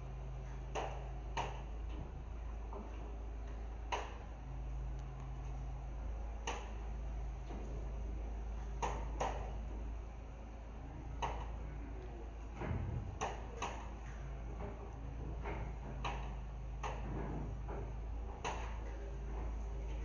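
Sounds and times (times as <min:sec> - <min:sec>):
sharp clicks and knocks: 0:00.4 - 0:04.3, 0:06.4 - 0:06.8, 0:08.8 - 0:09.8, 0:11.2 - 0:20.0.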